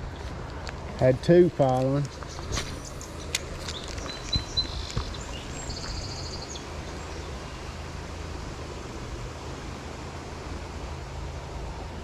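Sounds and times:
river water flowing: 0.0 - 12.0
high chirping: 2.1 - 7.4.

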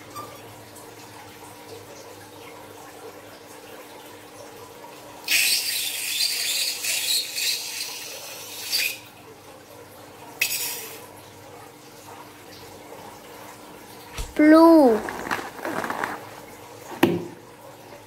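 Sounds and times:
liquid squirting and spattering: 14.1 - 17.4.

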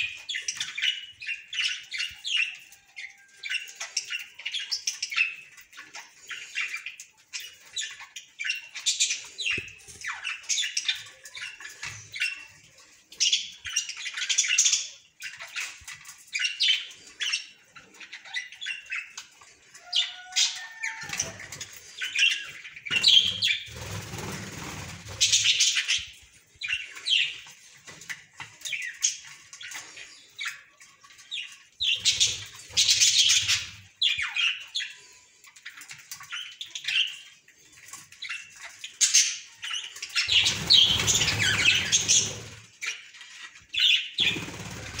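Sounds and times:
budgerigars chirping and squawking: 0.0 - 45.0
wing flapping: 22.9 - 25.7, 40.3 - 42.7, 44.2 - 45.0.

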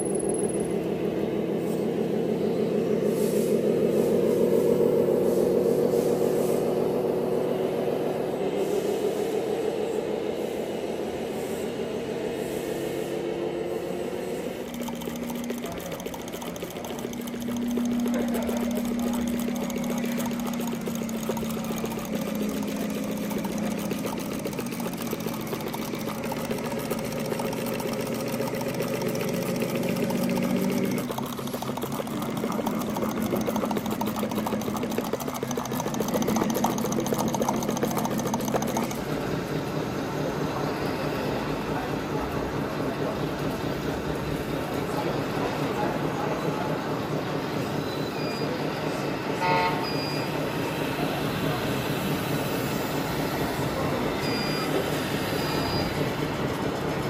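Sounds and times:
radio-controlled model vehicle running: 13.9 - 39.7, 49.7 - 57.0.

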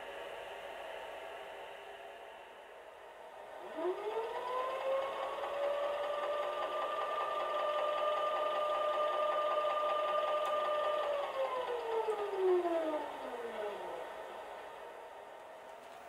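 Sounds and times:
model locomotive motor whine: 3.4 - 16.0.

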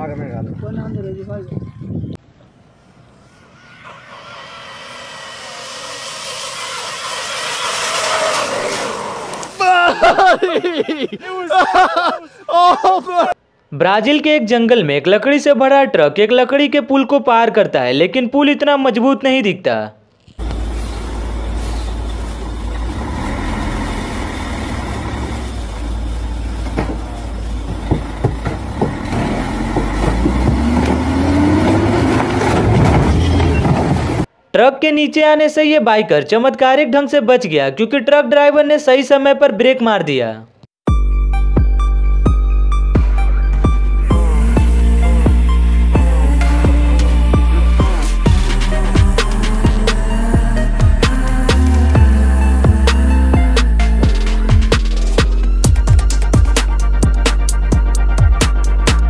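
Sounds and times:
rc car motor whine: 2.9 - 9.6
hiss of water spray: 3.6 - 9.6, 20.4 - 22.9
truck engine running: 3.9 - 9.6, 20.4 - 34.3, 43.1 - 59.0
logs falling: 26.6 - 34.2
wooden bridge knocking and cracking: 26.7 - 31.1.

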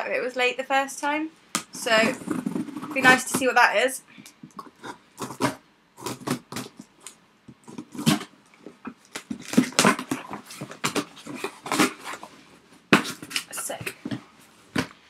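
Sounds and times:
cardboard scraping and rustling: 1.9 - 3.4, 9.1 - 15.0.

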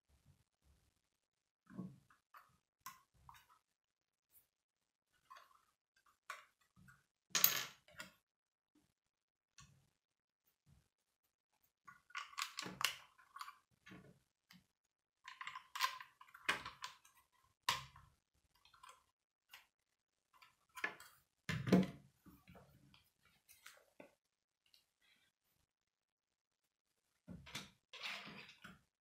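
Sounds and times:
plastic bricks clicking and rattling: 15.3 - 17.1.

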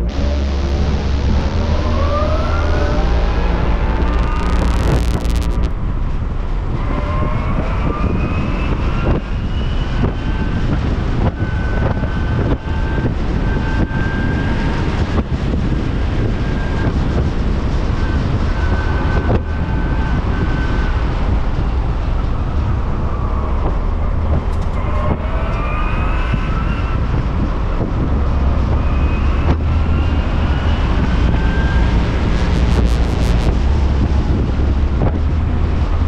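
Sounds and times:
electric motor whine: 0.0 - 5.7, 29.3 - 34.0
wind and road rumble: 0.0 - 36.0.

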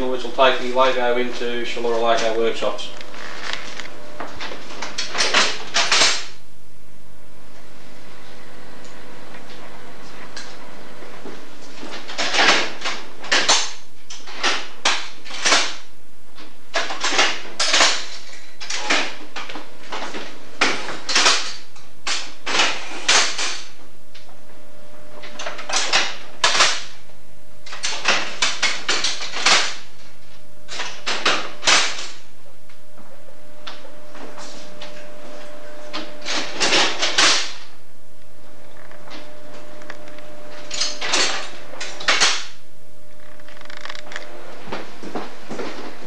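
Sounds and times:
signal box levers clacking: 4.4 - 6.4, 25.2 - 27.0, 40.6 - 42.5.

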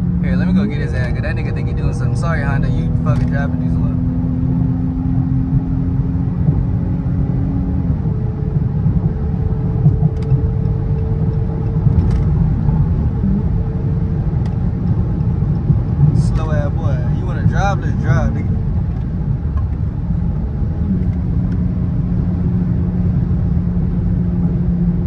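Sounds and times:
car engine accelerating: 0.0 - 25.0
tyre and road noise: 0.0 - 25.0.

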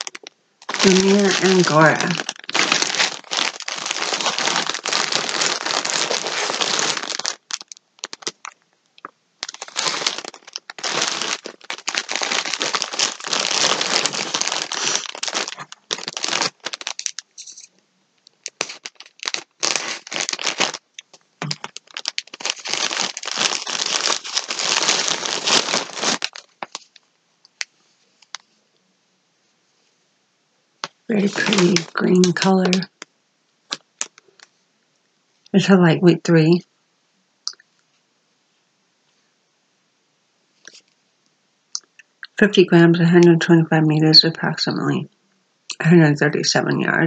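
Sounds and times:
plastic wrapping crinkling: 0.0 - 28.6, 30.8 - 33.1, 33.7 - 34.6, 40.6 - 40.9.

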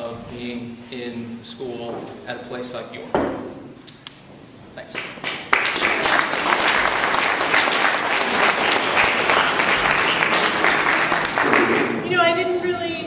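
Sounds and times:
audience applauding: 5.0 - 12.3.

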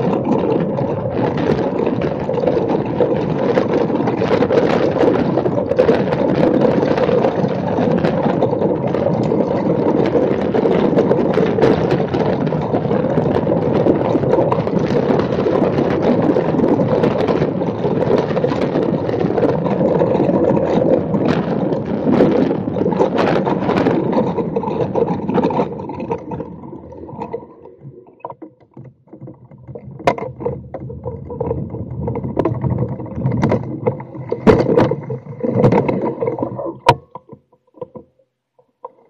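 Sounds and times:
kart wheels rumbling on tarmac: 0.0 - 27.4
knocks and rattles: 23.1 - 38.1.

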